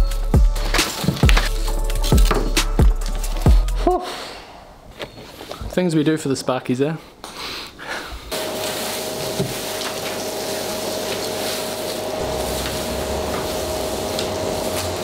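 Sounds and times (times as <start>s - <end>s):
dust extractor vacuuming floor: 8.3s - 15.0s.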